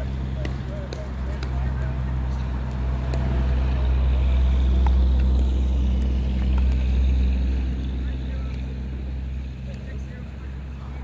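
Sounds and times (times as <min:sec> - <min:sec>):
paddles striking pickleball: 0:00.0 - 0:07.0
truck engine droning: 0:00.0 - 0:11.0.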